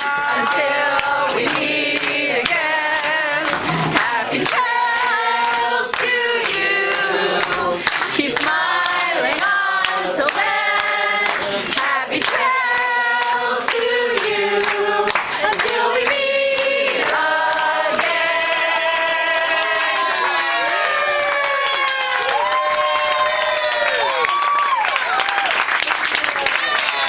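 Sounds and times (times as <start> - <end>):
group of people singing: 0.0 - 21.1
hands clapping in time: 7.4 - 27.0.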